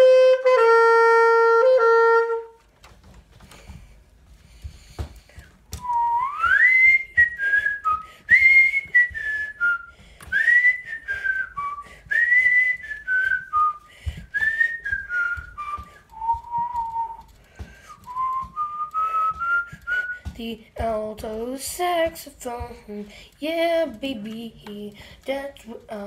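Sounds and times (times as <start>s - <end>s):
person whistling a tune: 5.8s - 20.4s.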